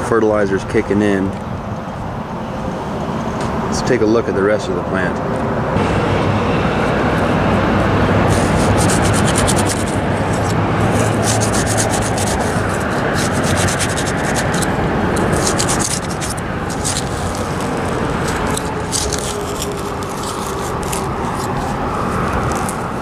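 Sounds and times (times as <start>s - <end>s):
hand rustling through grass: 6.8s - 23.0s
gritty crackling of gravel: 7.8s - 23.0s.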